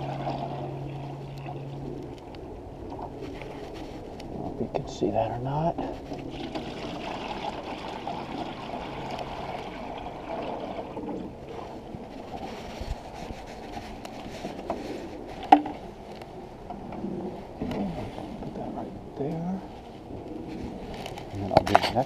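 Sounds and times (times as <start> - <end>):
water pouring from a bucket: 0.0 - 1.8, 6.2 - 11.8.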